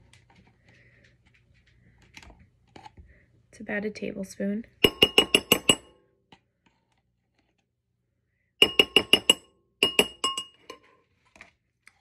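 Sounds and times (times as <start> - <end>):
metal utensil tapping glass bowl: 4.8 - 6.0, 8.6 - 10.9.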